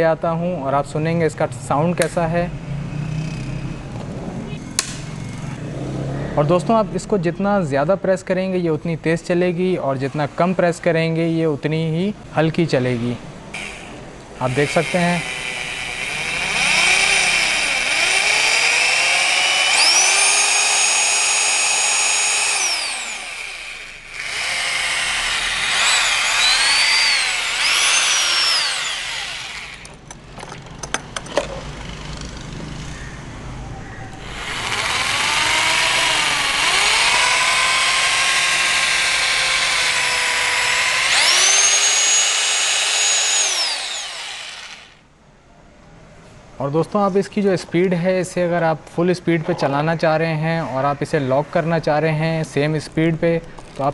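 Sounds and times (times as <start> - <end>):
hammer drill motor whining: 13.6 - 30.1, 34.2 - 45.0
drill clicks: 13.6 - 32.4, 34.2 - 45.0.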